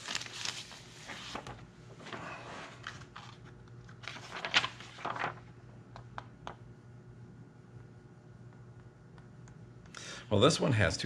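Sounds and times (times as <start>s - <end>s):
paper and plastic rustling: 0.0s - 5.5s.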